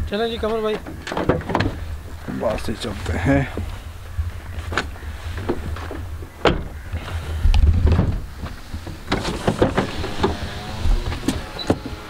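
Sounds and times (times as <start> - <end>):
knocks and handling in car: 4.7 - 6.8, 7.5 - 12.0.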